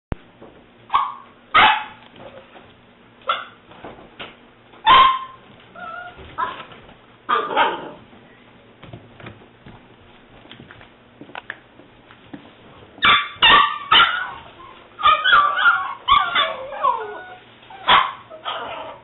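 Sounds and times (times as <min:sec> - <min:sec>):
puppy yipping: 0:00.9 - 0:02.0, 0:04.9 - 0:06.7, 0:13.0 - 0:19.0
puppy whining: 0:05.2 - 0:06.7, 0:13.4 - 0:19.0.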